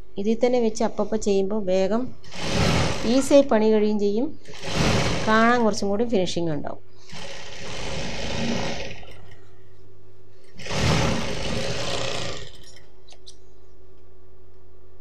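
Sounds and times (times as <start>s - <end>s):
sewing machine stitching: 2.2s - 3.4s, 4.4s - 5.8s, 7.1s - 9.4s, 10.5s - 12.9s.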